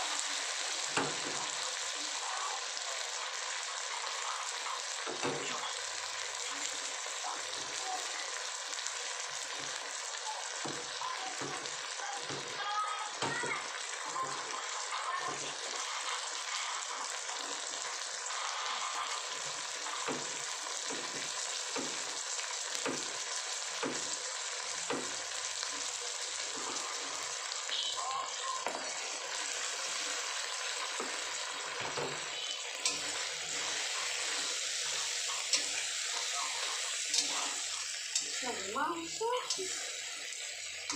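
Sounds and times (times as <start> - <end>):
chilies sizzling in hot oil: 0.0 - 40.9
metal spatula stirring in wok: 30.9 - 40.9.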